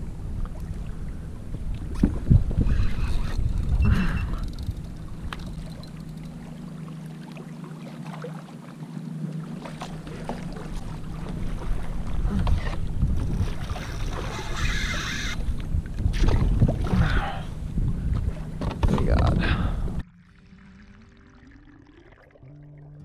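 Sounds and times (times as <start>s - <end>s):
wind buffeting microphone: 0.0s - 6.0s, 11.1s - 20.0s
water lapping against kayak hull: 0.2s - 22.7s.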